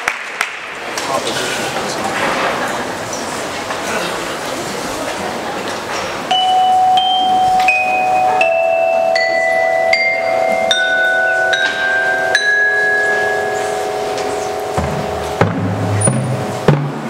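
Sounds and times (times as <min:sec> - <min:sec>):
mallet percussion notes ringing: 0:06.3 - 0:17.0.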